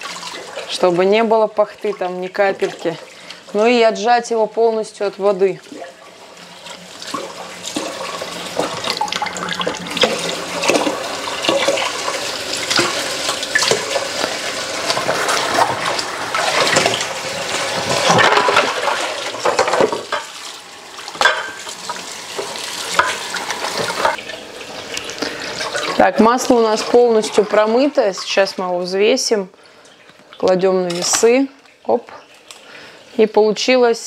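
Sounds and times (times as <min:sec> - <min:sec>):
irregular water splashing: 0:00.0 - 0:33.2
tap water running into steel bowl: 0:05.6 - 0:28.9.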